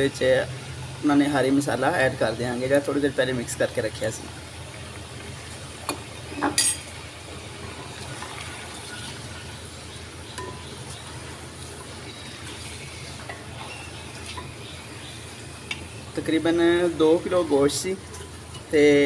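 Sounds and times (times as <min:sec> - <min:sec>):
meat sizzling in oil: 0:04.3 - 0:19.0
spatula stirring meat in pot: 0:07.3 - 0:16.1, 0:18.0 - 0:19.0.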